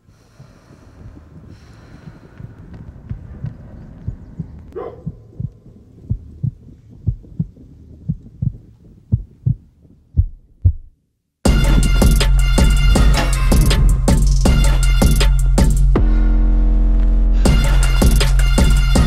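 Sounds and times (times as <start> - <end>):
faint low hum: 0.0 - 11.2
heartbeat double thumps: 0.0 - 16.3.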